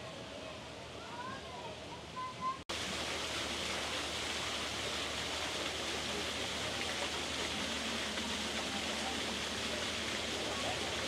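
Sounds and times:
waterfall splashing over rocks: 2.7s - 11.0s.

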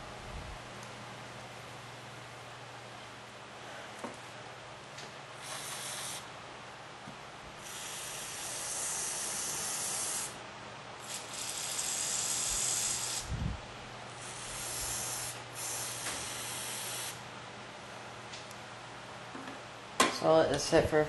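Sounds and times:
aerosol spray hissing: 5.4s - 6.2s, 7.6s - 10.4s, 11.0s - 13.3s, 14.2s - 17.2s.

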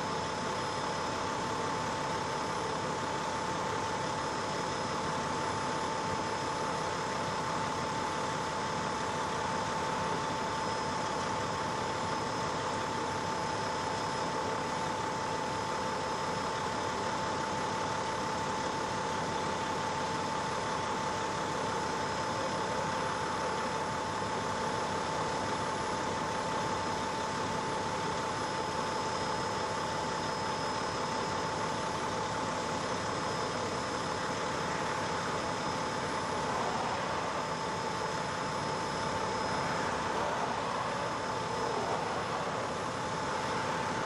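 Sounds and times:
fire engines idling: 0.0s - 44.0s
steady mid-pitched hum: 18.0s - 44.0s.

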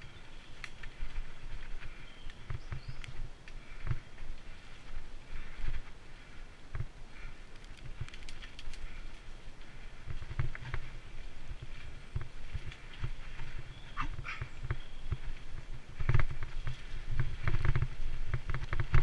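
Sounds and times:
wind rumbling on microphone: 0.0s - 19.0s
bike rattling and knocking: 9.7s - 19.0s.

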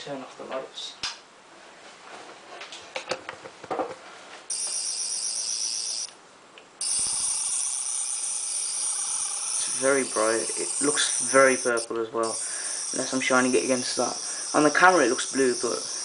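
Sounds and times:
high-pitched electronic warbling whine: 4.5s - 6.1s, 6.8s - 16.0s.

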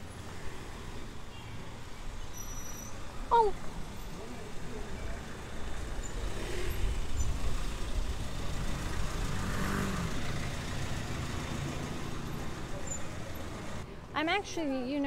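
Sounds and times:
vehicle engine rumbling: 2.9s - 14.0s.

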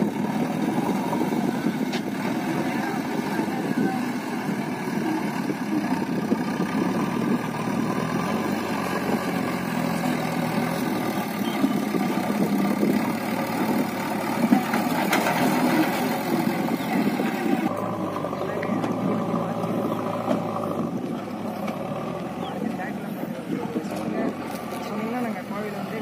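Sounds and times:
diesel engines running: 0.0s - 26.0s.

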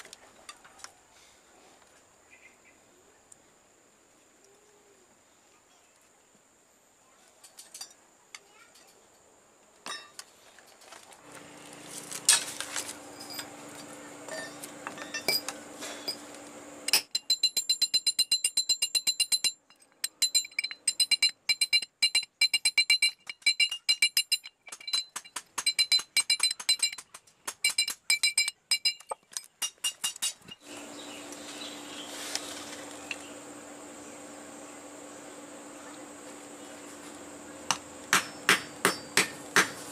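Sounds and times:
steady low hum: 11.2s - 17.0s, 30.5s - 39.9s
hammer tapping on metal: 37.7s - 39.8s.

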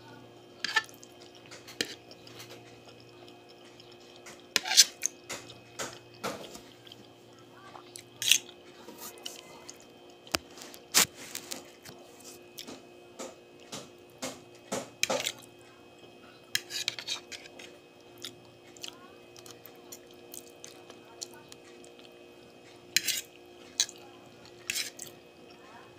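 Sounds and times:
fork scraping a plate: 0.6s - 2.7s, 3.8s - 5.1s, 8.2s - 9.4s, 16.5s - 17.8s, 22.8s - 25.1s
chewing: 0.6s - 12.8s, 15.0s - 25.7s.

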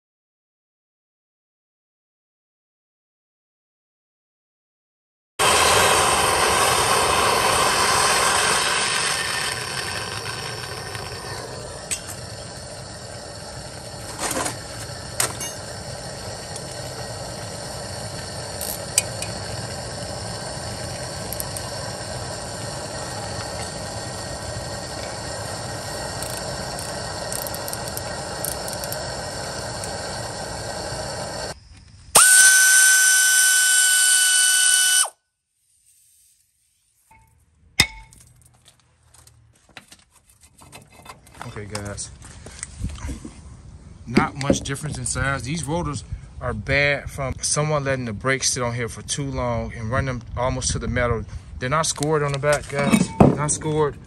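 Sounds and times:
gas torch hissing: 5.4s - 35.1s
loud pitched whine: 5.4s - 35.1s.

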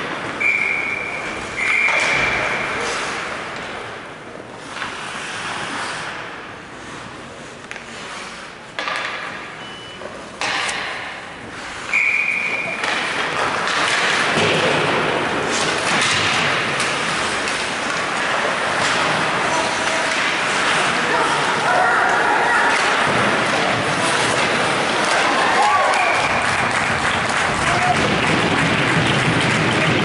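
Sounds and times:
ice skating: 0.0s - 30.0s
short whistle: 0.4s - 2.4s, 11.9s - 12.8s
hockey stick and puck knocks: 8.7s - 9.5s, 10.4s - 11.2s, 12.6s - 20.9s.

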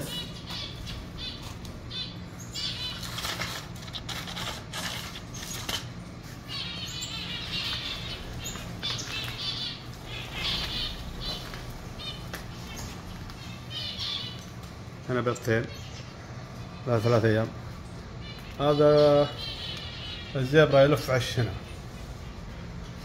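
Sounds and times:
finches chirping: 0.0s - 22.7s
wings fluttering: 2.6s - 6.4s, 7.4s - 14.9s.

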